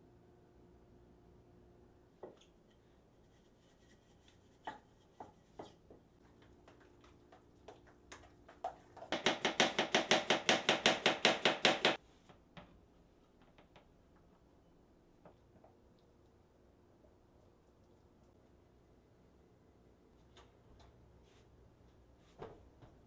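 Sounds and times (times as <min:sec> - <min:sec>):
utensil beating in metal bowl: 0:03.8 - 0:12.0
scattered knocks and taps: 0:06.6 - 0:12.0.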